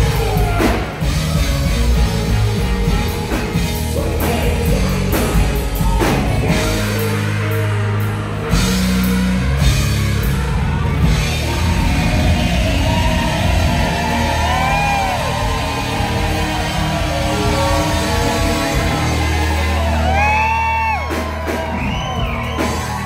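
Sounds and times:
live rock band playing: 0.0 - 23.0.

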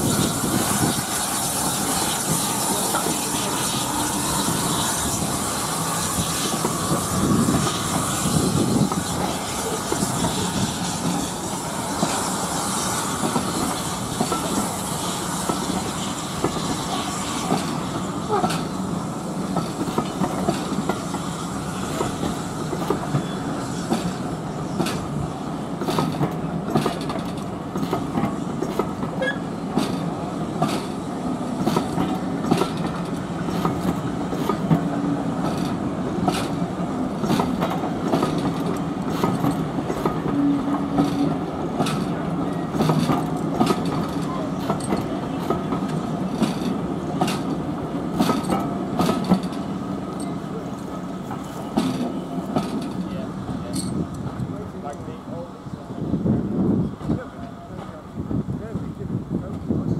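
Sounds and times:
train coaches rumbling on rails: 0.0 - 59.9
wheels clicking over rail joints: 25.8 - 31.0, 31.6 - 55.1.

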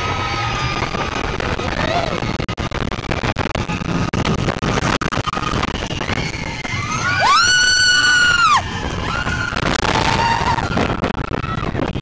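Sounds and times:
roller coaster rumbling on track: 0.0 - 12.0
rider screaming: 6.7 - 10.9.

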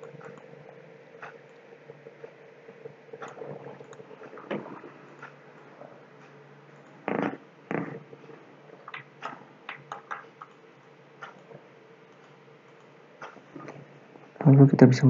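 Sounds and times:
faint steady hum: 0.0 - 15.0
computer mouse clicks: 3.2 - 5.4, 8.8 - 13.8.

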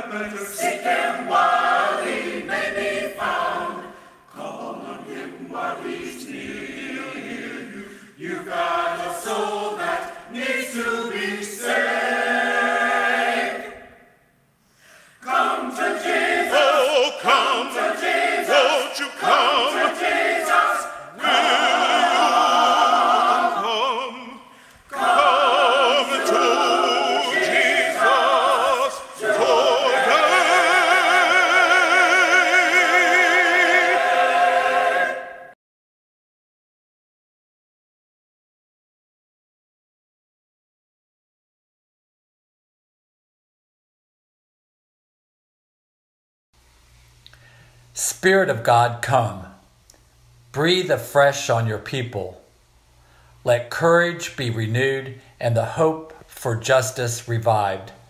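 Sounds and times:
choir singing: 0.0 - 14.2, 15.2 - 35.6.

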